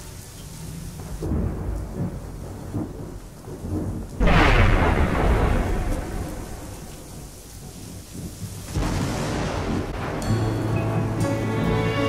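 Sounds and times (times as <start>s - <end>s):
rain falling: 0.0s - 12.0s
thunder rumble: 0.6s - 10.8s
loud thunderclap: 1.0s - 10.6s.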